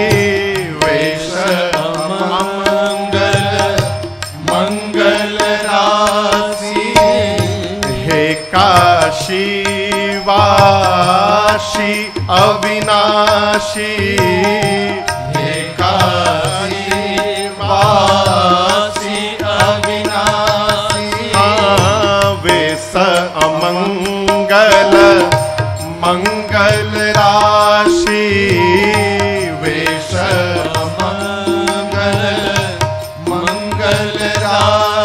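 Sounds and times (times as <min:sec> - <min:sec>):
steady held drone: 0:00.0 - 0:22.8
percussion: 0:00.0 - 0:35.0.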